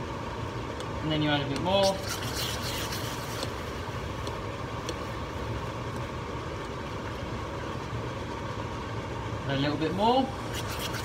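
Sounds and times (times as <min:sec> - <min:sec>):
caramel hissing and bubbling: 0:01.1 - 0:07.8, 0:10.2 - 0:11.0.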